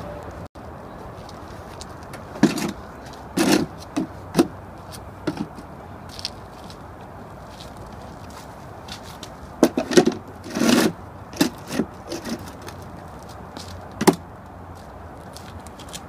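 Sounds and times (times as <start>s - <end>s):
ramp scraping on asphalt: 3.4s - 4.5s, 8.3s - 12.8s.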